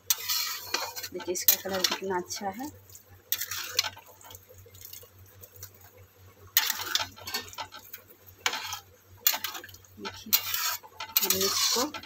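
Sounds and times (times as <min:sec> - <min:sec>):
spatula scraping metal pan: 0:00.0 - 0:02.6, 0:03.3 - 0:04.4, 0:06.6 - 0:12.0.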